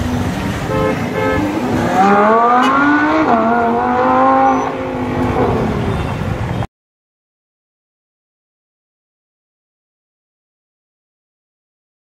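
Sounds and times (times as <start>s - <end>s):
sports car engine accelerating: 0.0s - 6.5s.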